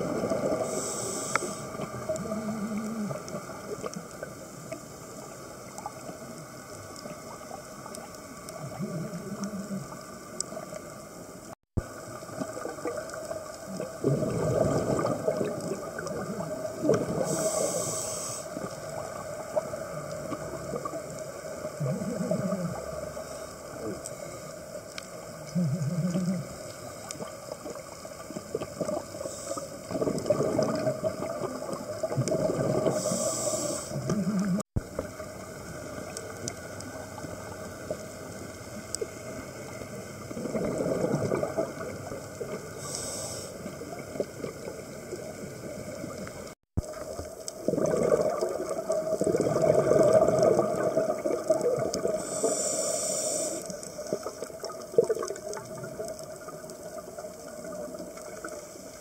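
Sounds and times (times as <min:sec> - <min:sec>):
bubbling exhaled air: 0:00.0 - 0:04.3, 0:11.8 - 0:24.5, 0:25.3 - 0:35.9, 0:40.1 - 0:58.6
regulator hissing inhalation: 0:00.6 - 0:02.0, 0:17.2 - 0:18.8, 0:32.8 - 0:34.4, 0:42.8 - 0:43.7, 0:52.2 - 0:54.4.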